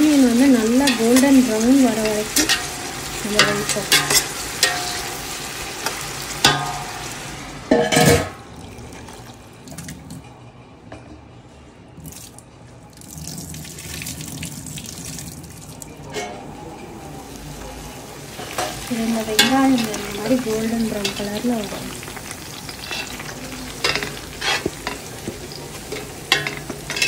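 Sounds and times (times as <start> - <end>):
onions sizzling in oil: 0.0 - 9.3, 17.1 - 27.0.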